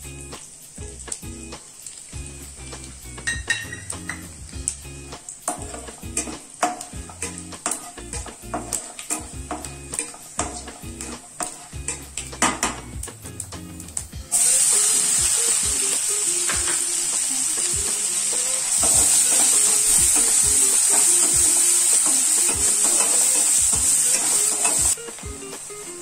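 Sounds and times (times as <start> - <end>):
onions sizzling in hot oil: 0.0 - 26.0
spatula knocking against pan: 3.3 - 4.3, 5.5 - 12.8.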